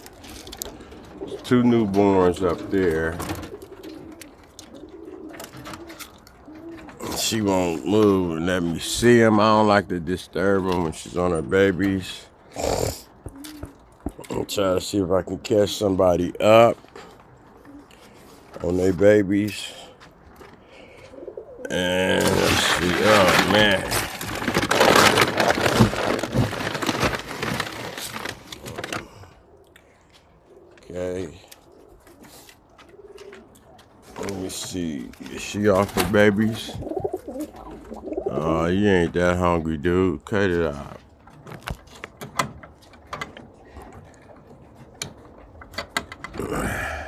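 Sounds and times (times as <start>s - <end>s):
loud rustling and crackling: 22.1s - 29.1s.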